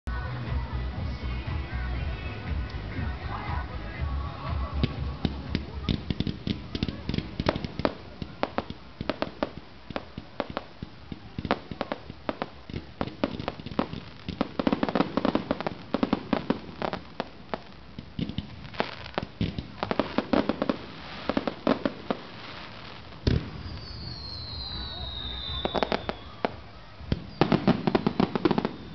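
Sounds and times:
fireworks bangs and crackling: 0:00.2 - 0:28.9.

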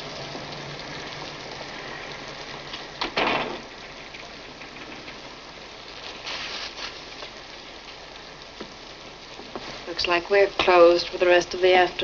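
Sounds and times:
heavy rain hissing: 0:00.0 - 0:12.0
roller shade rattling on glass door: 0:03.0 - 0:06.5.

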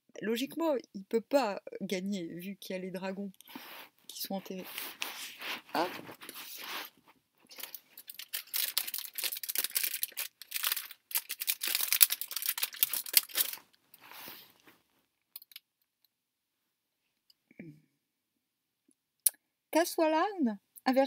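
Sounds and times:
fabric rustling against microphone: 0:03.5 - 0:15.1.

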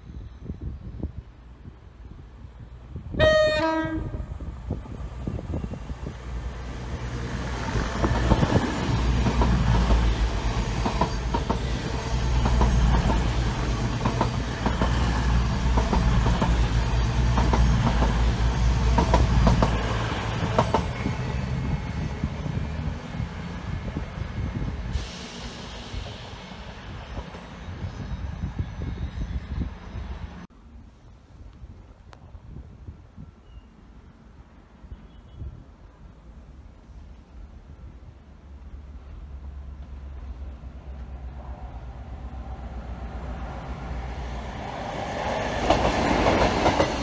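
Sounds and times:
diesel train engine rumble: 0:00.2 - 0:30.5
two-tone train horn: 0:03.1 - 0:04.4
train wheels clickety-clack: 0:07.6 - 0:21.0, 0:45.1 - 0:47.0.

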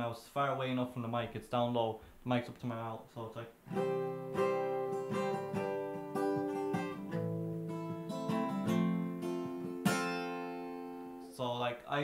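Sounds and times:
guitar chords strummed: 0:03.7 - 0:11.3.

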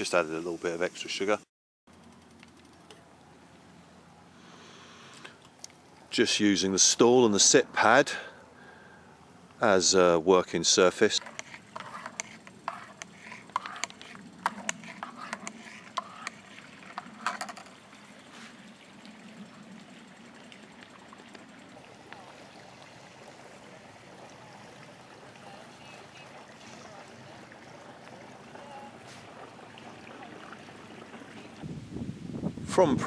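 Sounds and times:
faint outdoor hiss: 0:00.0 - 0:33.0.

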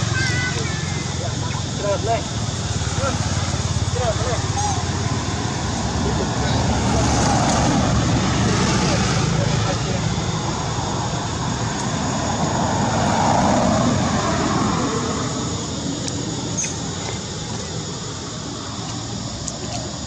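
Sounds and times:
road vehicle passing: 0:00.0 - 0:20.0
steady traffic noise: 0:00.0 - 0:20.0.

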